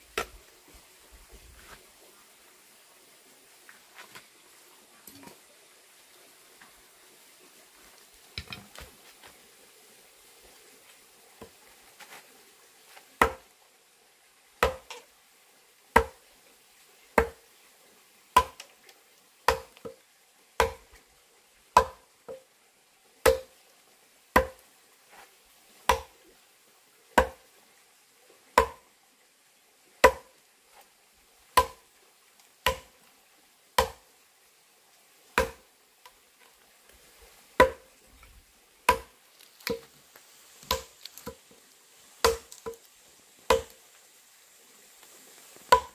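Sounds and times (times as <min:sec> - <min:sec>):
adze chopping into log: 0:13.2 - 0:13.4, 0:14.6 - 0:15.0, 0:18.4 - 0:18.6, 0:19.5 - 0:19.8, 0:20.6 - 0:20.8, 0:21.8 - 0:22.0, 0:23.2 - 0:23.5, 0:24.4 - 0:24.6, 0:25.9 - 0:26.1, 0:28.6 - 0:28.8, 0:30.0 - 0:30.3, 0:31.6 - 0:31.8, 0:32.7 - 0:32.9, 0:33.8 - 0:34.0, 0:35.4 - 0:35.6, 0:37.6 - 0:37.8, 0:38.9 - 0:39.9, 0:40.6 - 0:41.4, 0:42.2 - 0:42.8, 0:43.5 - 0:43.8.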